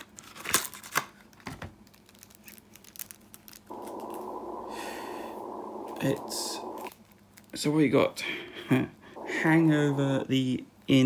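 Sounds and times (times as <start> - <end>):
low hum: 3.7 - 7.0, 9.1 - 10.6.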